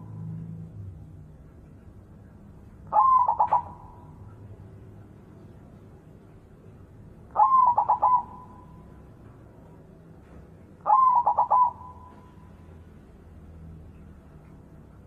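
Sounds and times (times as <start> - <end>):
dove cooing: 2.9 - 4.3, 7.3 - 8.9, 10.8 - 12.4.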